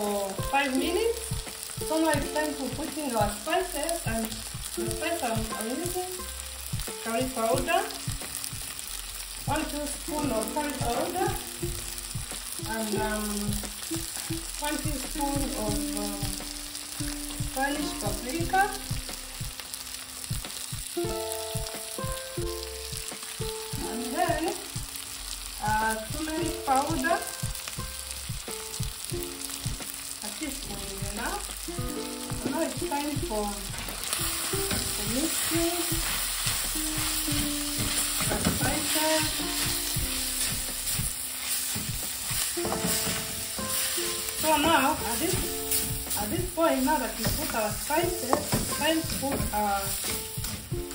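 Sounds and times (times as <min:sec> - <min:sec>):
food sizzling in a wok: 0:00.0 - 0:50.9
spatula stirring: 0:33.7 - 0:50.7.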